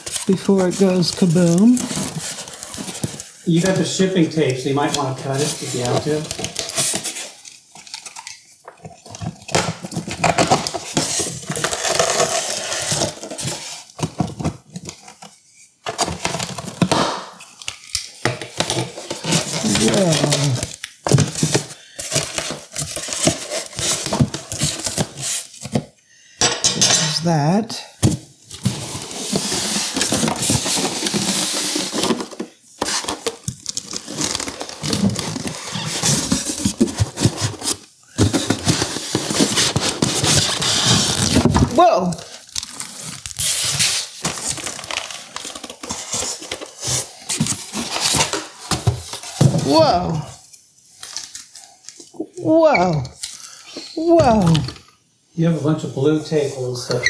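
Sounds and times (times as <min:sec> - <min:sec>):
foam and plastic wrap rustling: 0:00.0 - 0:26.0, 0:27.1 - 0:54.8
foam scraping and rustling: 0:28.6 - 0:33.0.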